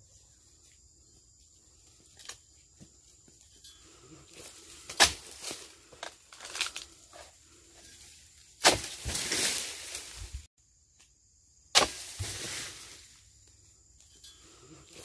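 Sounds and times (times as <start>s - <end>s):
chisel striking palm frond: 4.9s - 5.4s, 8.6s - 9.6s, 11.7s - 12.6s.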